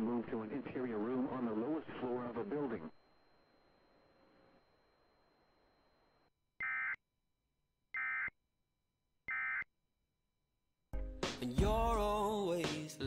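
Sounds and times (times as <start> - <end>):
faint radio hiss: 0.0 - 6.2.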